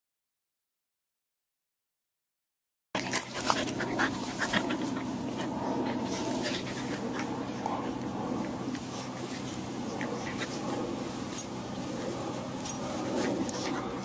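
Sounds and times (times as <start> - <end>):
dog panting: 3.0 - 14.0
dogs play-fighting: 3.0 - 14.0.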